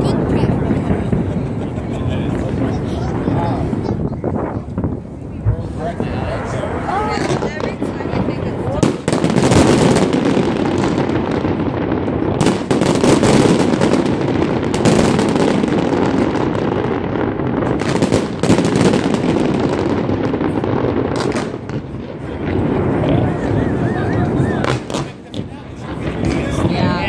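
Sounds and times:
fireworks bangs and crackling: 0.0 - 27.0
heavy fireworks booms: 0.0 - 27.0.

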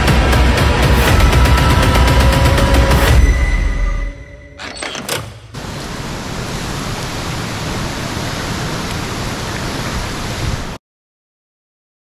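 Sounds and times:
waterfall pouring into a pool: 5.6 - 10.8.

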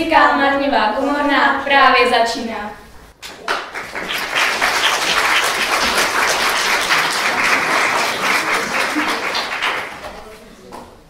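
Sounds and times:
audience applauding: 3.3 - 10.4.

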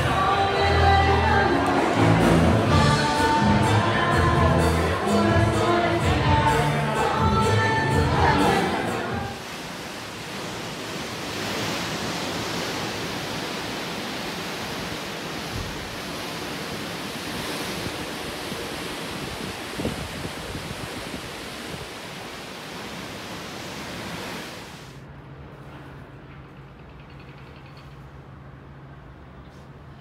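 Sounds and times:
sea water rushing along hull: 0.0 - 25.1
wind buffeting microphone: 17.4 - 22.0.

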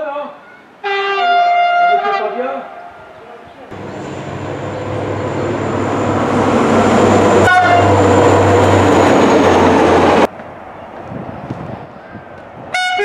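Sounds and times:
train horn toot: 0.8 - 2.4, 7.4 - 8.5, 12.7 - 13.0
train rail and wheel noise: 3.7 - 13.0.

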